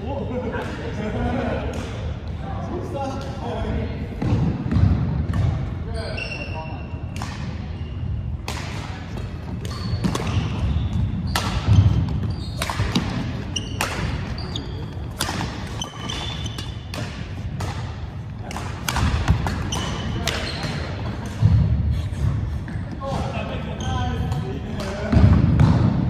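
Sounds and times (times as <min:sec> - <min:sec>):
sneakers squeaking on wooden floor: 0:05.4 - 0:07.0, 0:09.3 - 0:17.1, 0:19.2 - 0:21.0
rackets striking shuttlecock: 0:08.4 - 0:21.5.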